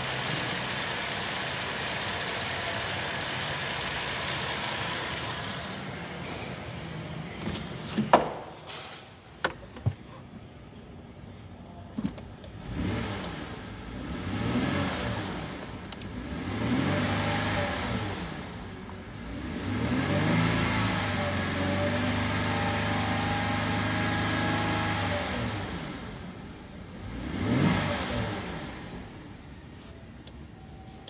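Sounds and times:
car engine revving: 0:12.6 - 0:26.3, 0:27.0 - 0:29.2.

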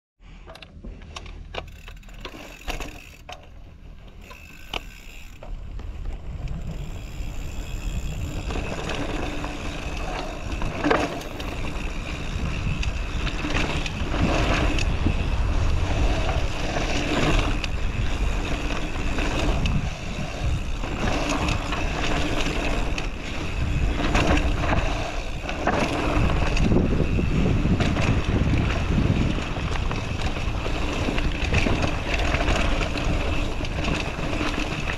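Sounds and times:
bike tyre noise: 0:00.2 - 0:34.9
bike rattling over bumps: 0:00.3 - 0:34.9
wind rushing over microphone: 0:05.5 - 0:34.9.

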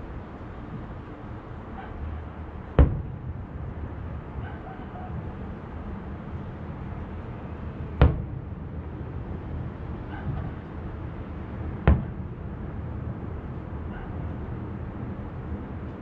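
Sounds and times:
low background noise: 0:00.0 - 0:16.0
distant firework shells bursting: 0:02.6 - 0:03.5, 0:07.9 - 0:08.6, 0:11.8 - 0:12.4.

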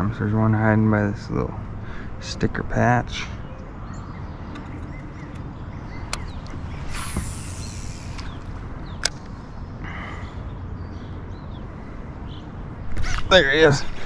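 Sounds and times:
sharp click: 0:06.1 - 0:09.3
fishing line hissing off reel: 0:06.8 - 0:08.5.

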